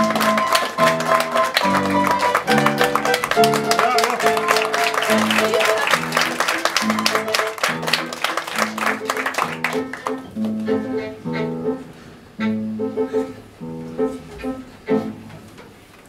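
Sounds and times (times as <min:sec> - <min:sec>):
violin: 0:00.0 - 0:08.1, 0:09.1 - 0:11.8, 0:14.4 - 0:15.3
piano: 0:00.0 - 0:16.0.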